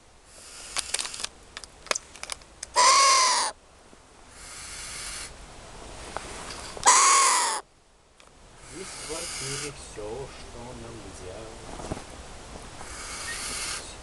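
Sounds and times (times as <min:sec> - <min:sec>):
owl rasping screeches: 0:00.3 - 0:01.2, 0:02.7 - 0:03.6, 0:04.3 - 0:05.4, 0:06.8 - 0:07.6, 0:08.6 - 0:09.8, 0:12.8 - 0:14.0.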